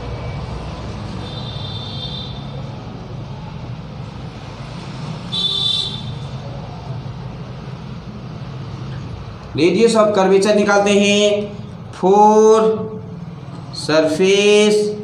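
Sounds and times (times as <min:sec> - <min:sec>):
road traffic rumble: 0:00.0 - 0:15.0
vehicle horn toots: 0:01.2 - 0:02.5, 0:05.3 - 0:06.2.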